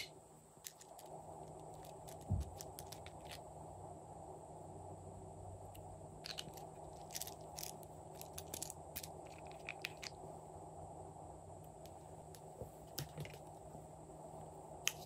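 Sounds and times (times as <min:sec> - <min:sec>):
plastic tubes clicking and crackling: 0:00.0 - 0:03.4, 0:06.2 - 0:10.2
faint steady background noise: 0:00.0 - 0:15.0.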